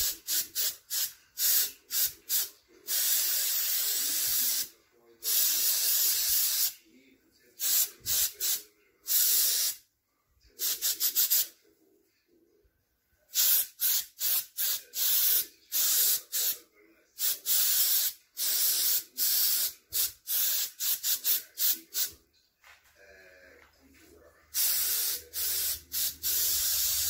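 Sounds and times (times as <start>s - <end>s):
paint spray gun hissing: 24.6s - 27.0s.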